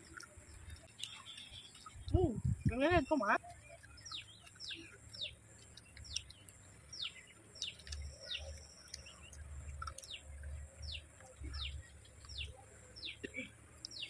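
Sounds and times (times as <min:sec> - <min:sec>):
small clicks: 0:03.4 - 0:12.6.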